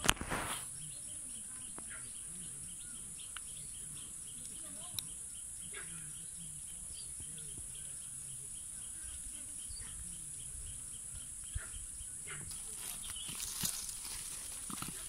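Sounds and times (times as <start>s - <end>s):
faint bird calls: 0.0s - 15.0s.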